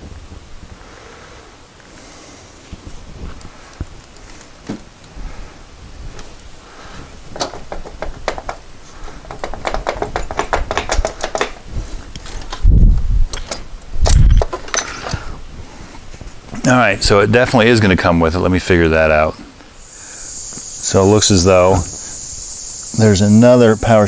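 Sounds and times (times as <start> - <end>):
metal parts clicking and knocking: 7.3 - 12.7, 13.3 - 15.2.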